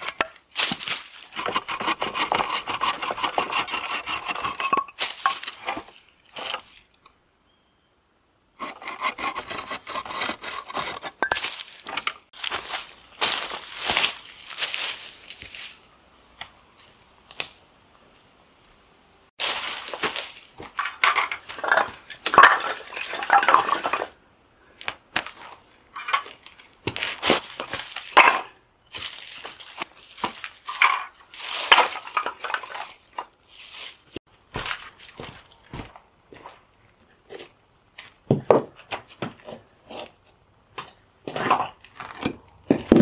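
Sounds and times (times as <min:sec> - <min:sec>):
footsteps crunching dry leaves: 0:00.0 - 0:01.4, 0:05.0 - 0:06.8, 0:11.4 - 0:17.0, 0:19.4 - 0:20.6, 0:27.0 - 0:28.2, 0:28.9 - 0:30.7, 0:31.3 - 0:32.2, 0:33.5 - 0:35.9
firewood sticks clattering on rock: 0:00.0 - 0:01.8, 0:04.4 - 0:06.9, 0:10.8 - 0:15.8, 0:19.4 - 0:24.2, 0:25.2 - 0:33.3.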